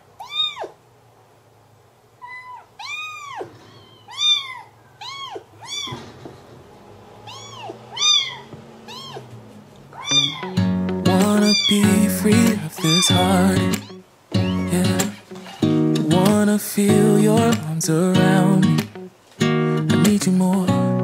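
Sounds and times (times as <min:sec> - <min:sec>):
kitten meowing: 0:00.2 - 0:00.8, 0:02.2 - 0:06.1, 0:07.2 - 0:09.3, 0:09.9 - 0:10.7, 0:11.3 - 0:15.6.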